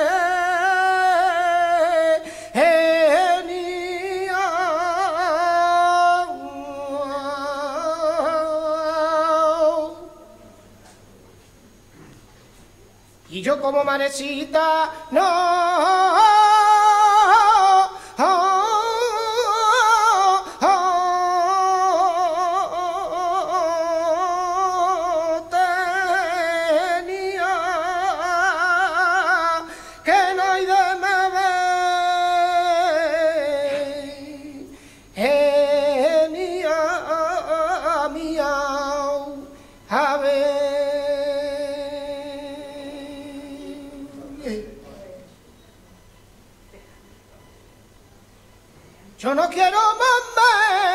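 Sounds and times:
man singing unaccompanied: 0.0s - 10.5s, 13.3s - 45.0s, 49.2s - 50.9s
singer breathing: 2.2s - 2.6s, 17.9s - 18.2s, 29.7s - 30.1s, 34.6s - 35.2s, 39.5s - 39.9s.

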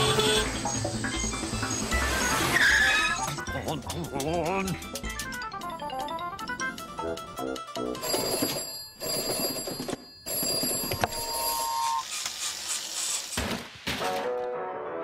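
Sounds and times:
whistle-like tone: 0.1s - 3.4s.

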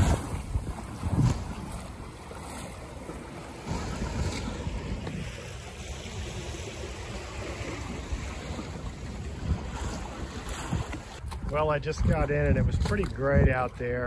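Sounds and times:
water rushing past a hull: 0.0s - 14.0s
wind buffeting microphone: 0.0s - 14.0s.

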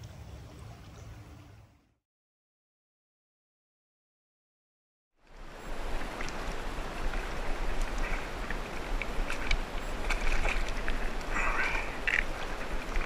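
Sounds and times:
creek water rushing: 5.2s - 13.0s.

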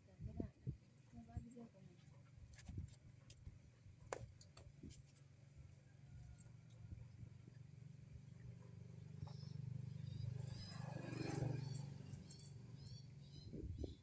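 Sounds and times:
passing motor vehicle hum: 7.1s - 14.0s
faint bird chirps: 9.0s - 14.0s.

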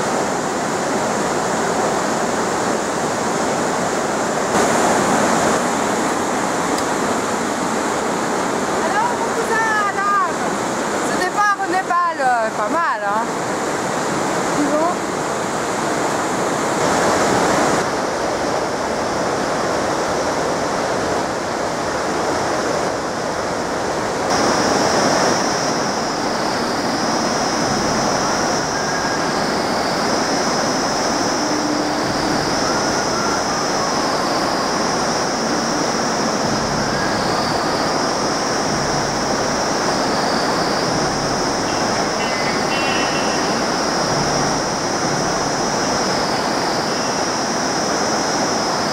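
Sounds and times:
river water roaring: 0.0s - 48.9s
high buzz: 24.3s - 48.9s.

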